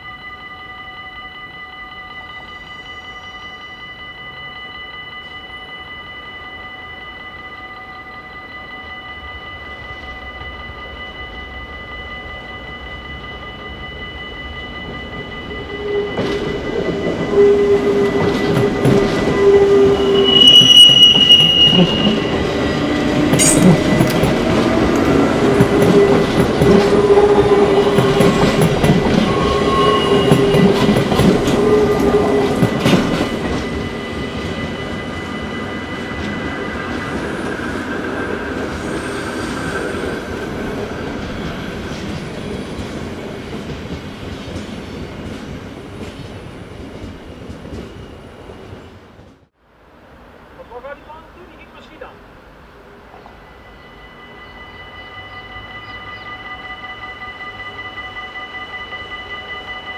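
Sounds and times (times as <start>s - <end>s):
level crossing warning bell: 0.0s - 46.5s, 53.4s - 59.9s
train wheels squealing: 13.2s - 42.8s.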